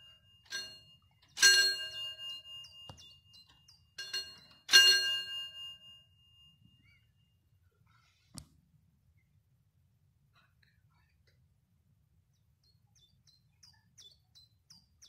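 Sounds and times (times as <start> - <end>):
mechanical warning bell ringing: 0.0 - 6.9.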